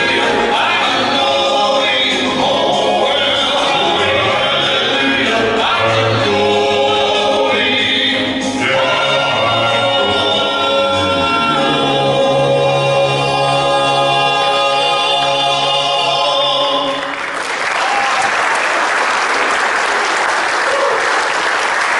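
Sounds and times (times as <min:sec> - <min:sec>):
male vocal quartet singing: 0:00.0 - 0:17.2
audience applause: 0:16.9 - 0:21.9.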